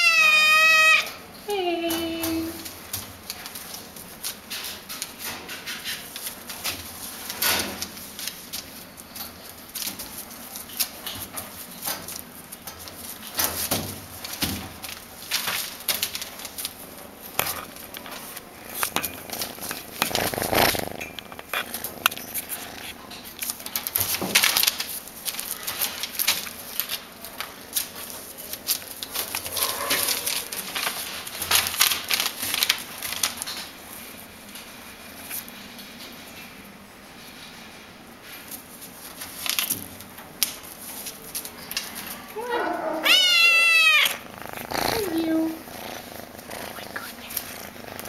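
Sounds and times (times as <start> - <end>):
newspaper rustling and crackling: 2.6 - 20.9, 23.3 - 34.3, 38.4 - 42.3.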